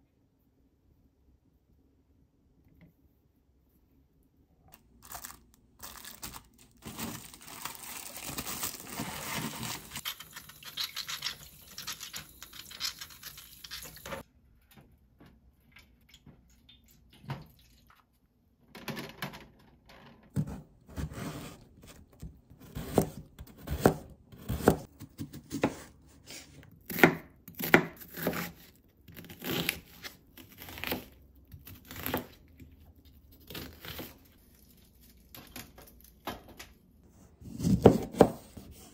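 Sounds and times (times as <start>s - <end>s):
cling film crinkling: 5.0s - 10.9s.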